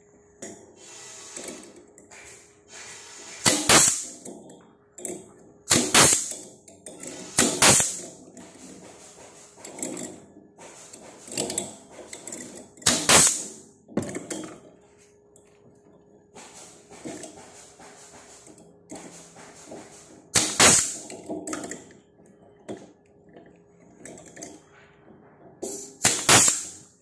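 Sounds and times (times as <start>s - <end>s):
stapler gun firing shots: 3.4s - 4.1s, 5.7s - 6.3s, 7.4s - 8.0s, 12.9s - 13.6s, 20.4s - 21.0s, 26.0s - 26.8s.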